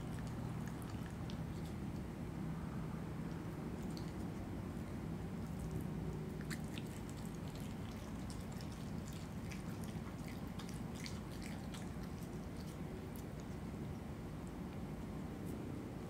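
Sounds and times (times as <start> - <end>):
animal chewing and biting meat: 0.0 - 2.1, 3.3 - 4.5, 5.4 - 14.6
steady low hum: 0.0 - 16.0.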